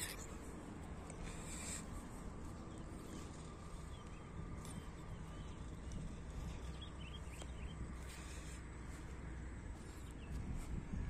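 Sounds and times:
wind rumble on microphone: 0:00.0 - 0:11.0
faint bird chirps: 0:01.0 - 0:08.6.

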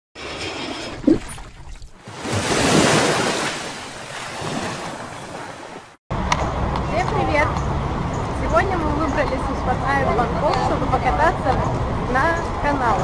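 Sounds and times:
ocean wave rushing in: 0:02.0 - 0:06.0.

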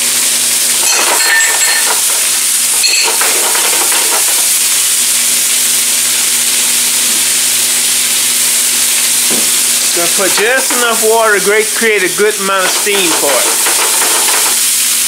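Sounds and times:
vegetables sizzling in frying pan: 0:00.0 - 0:15.0
pan scraping and knocking: 0:00.8 - 0:04.5, 0:12.6 - 0:14.6.

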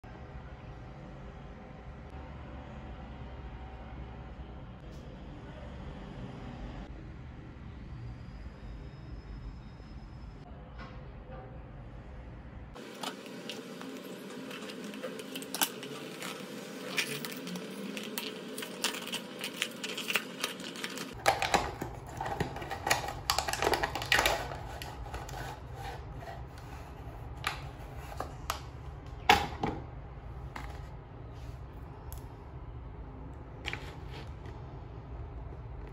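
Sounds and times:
foil bag crinkling: 0:12.8 - 0:25.8.

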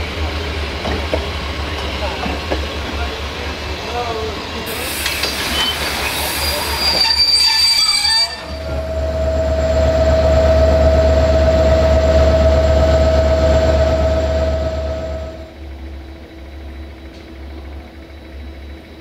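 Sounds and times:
locomotive deep rumble: 0:00.0 - 0:19.0
railway coaches clattering: 0:00.0 - 0:19.0
train wheel squeal: 0:04.6 - 0:19.0.

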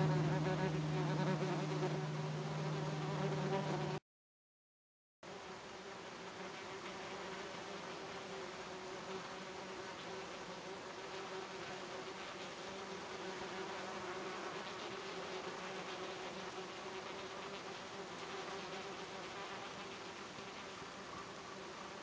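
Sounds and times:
wasps buzzing: 0:00.0 - 0:04.0.

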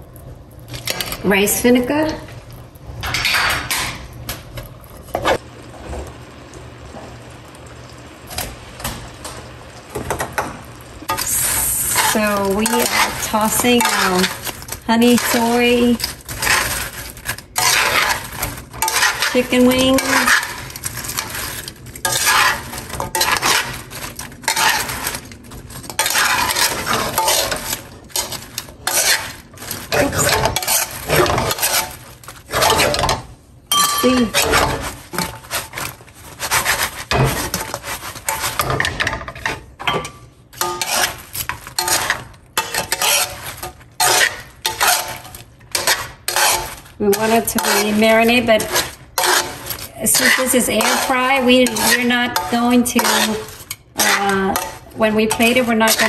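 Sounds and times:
spatula knocking and scraping wok: 0:12.0 - 0:16.9, 0:17.5 - 0:56.0.

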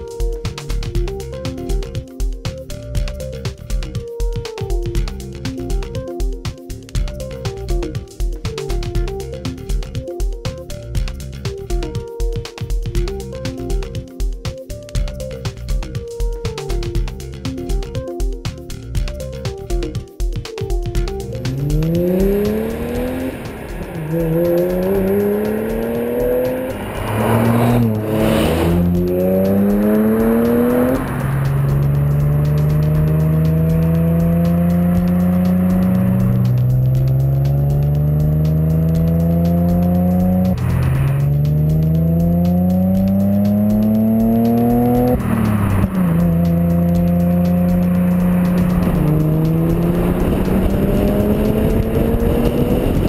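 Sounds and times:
car exhaust accelerating: 0:21.0 - 0:53.0.

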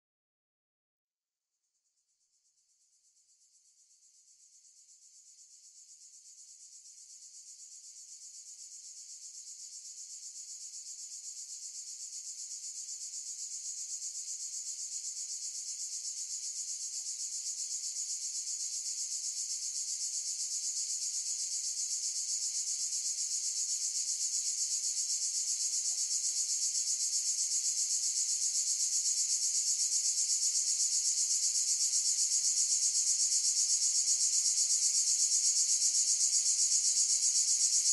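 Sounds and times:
cicadas buzzing: 0:25.3 - 0:37.9.

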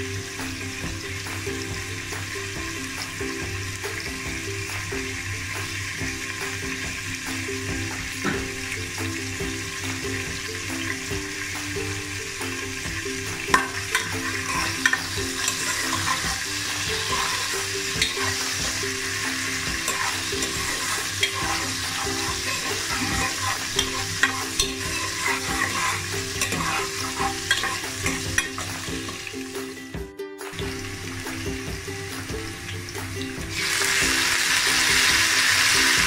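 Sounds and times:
food sizzling in hot oil: 0:00.0 - 0:29.8, 0:30.5 - 0:36.0
spatula scraping metal pot: 0:13.4 - 0:29.3.

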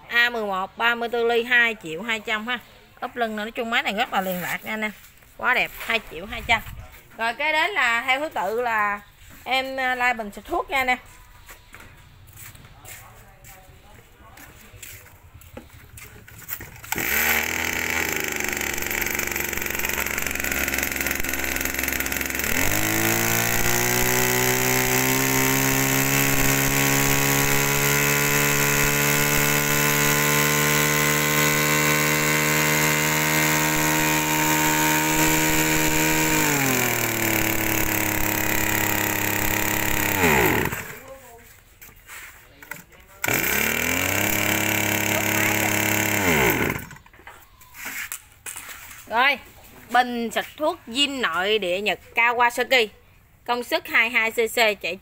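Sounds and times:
small engine idling and revving: 0:14.5 - 0:41.2, 0:42.6 - 0:47.2
engine pull-start: 0:16.2 - 0:41.0, 0:42.7 - 0:47.1.

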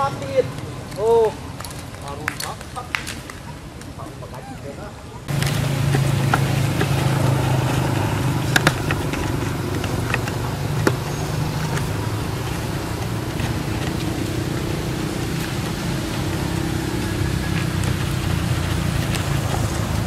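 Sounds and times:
low mechanical drone: 0:05.2 - 0:20.0.

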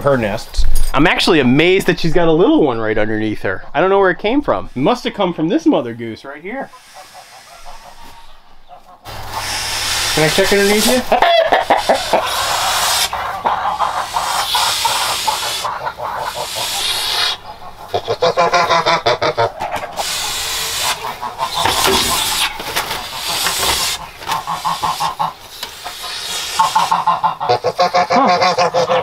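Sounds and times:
goose honking: 0:06.3 - 0:29.0
goose hissing: 0:06.5 - 0:29.0.

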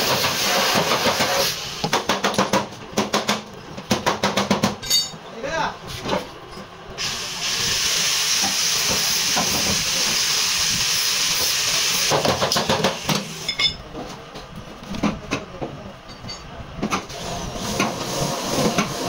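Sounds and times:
compressed air hissing: 0:00.0 - 0:01.9, 0:07.0 - 0:13.5, 0:17.1 - 0:19.0.

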